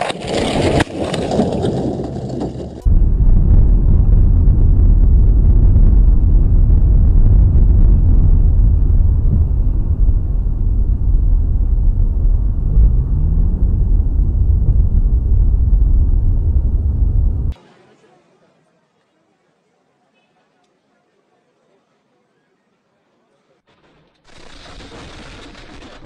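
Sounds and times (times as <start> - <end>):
car road and engine rumble: 2.5 - 17.6
brief rising tone: 10.4 - 17.6.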